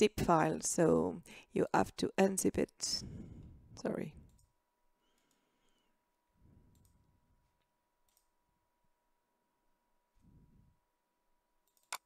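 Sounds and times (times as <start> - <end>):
computer mouse clicks: 6.7 - 7.0, 8.0 - 8.3, 11.6 - 12.0.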